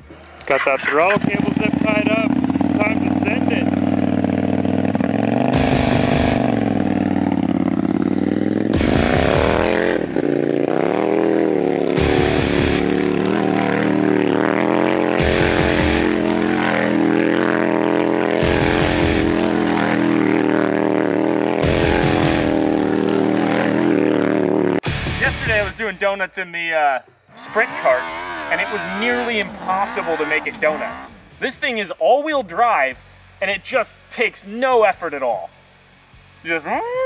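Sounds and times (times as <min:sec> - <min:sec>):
motorcycle engine revving hard: 0:00.6 - 0:24.8, 0:27.3 - 0:31.4.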